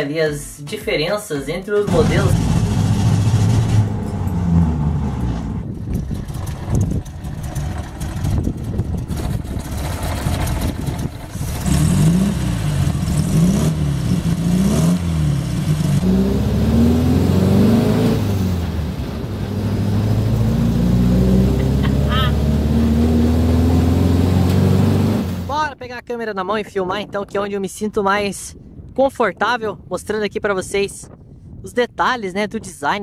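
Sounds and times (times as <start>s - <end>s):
engine starting and revving: 1.9s - 25.5s.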